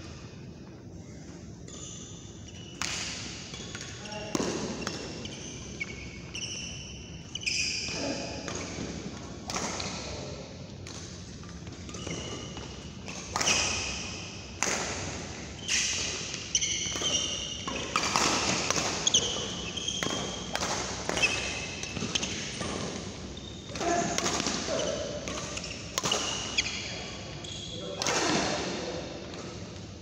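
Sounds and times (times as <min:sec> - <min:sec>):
shoe squeaks on court: 0:03.5 - 0:08.3, 0:15.6 - 0:23.7, 0:24.7 - 0:28.0
racket hitting shuttlecock: 0:08.4 - 0:10.1, 0:10.8 - 0:26.7.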